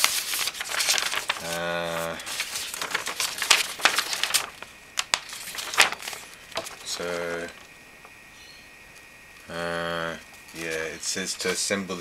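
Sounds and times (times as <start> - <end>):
paper sheet rustling: 0.0 - 8.2, 10.5 - 11.8
man saying umm: 1.4 - 2.2, 9.5 - 10.2.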